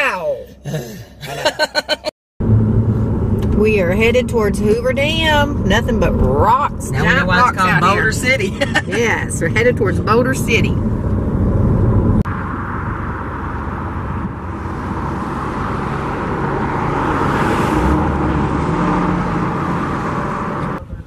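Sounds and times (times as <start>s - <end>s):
tyres and engine rumble: 0.0s - 21.0s
wind rushing: 8.0s - 20.6s.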